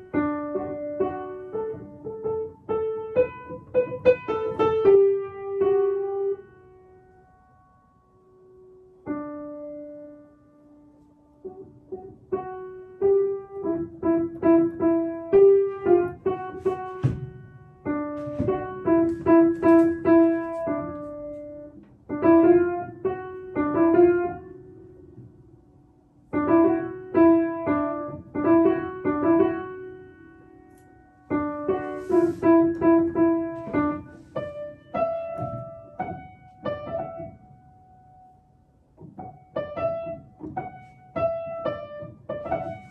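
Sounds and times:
simple piano melody: 0.0s - 42.9s.

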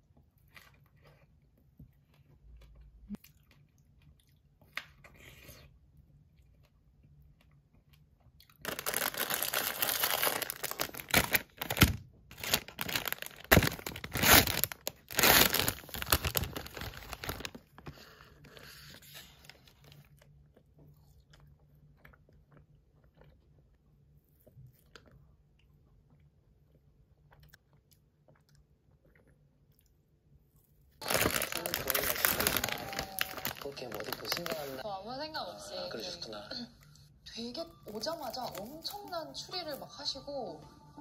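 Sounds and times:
plastic wrapper crinkling: 8.6s - 20.0s, 31.0s - 34.8s, 37.8s - 39.9s.

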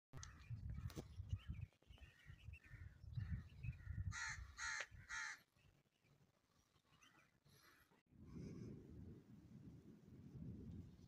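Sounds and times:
crow cawing: 4.1s - 5.4s.

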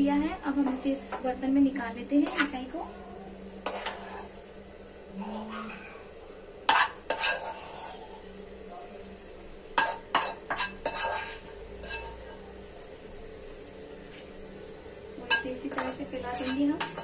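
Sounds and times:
spatula scraping metal pan: 2.2s - 2.7s, 3.6s - 4.4s, 6.7s - 8.2s, 9.8s - 12.5s, 15.3s - 17.0s.

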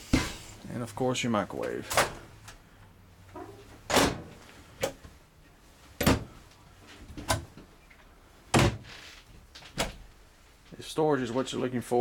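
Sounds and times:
cabinet doors knocking shut: 8.5s - 8.8s.

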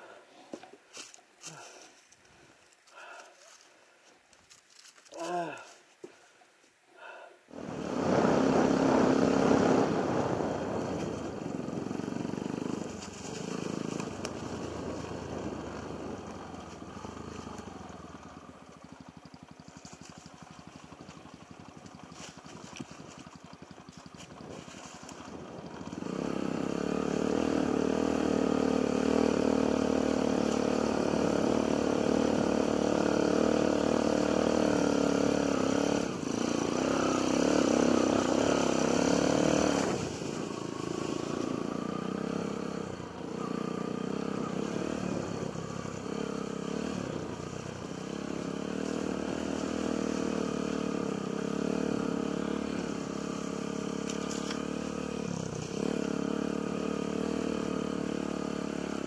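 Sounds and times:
motorcycle engine revving: 7.5s - 59.0s.

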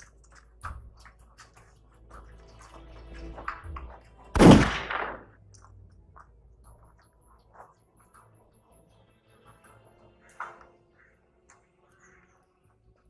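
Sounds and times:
loud bang: 4.4s - 5.3s.

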